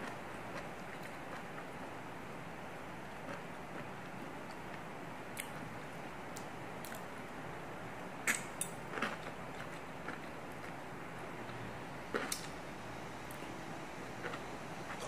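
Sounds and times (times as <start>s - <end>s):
soft wet chewing: 0.0s - 1.7s, 8.3s - 10.8s, 11.4s - 12.5s, 14.1s - 15.0s
steady background hiss: 0.0s - 15.0s.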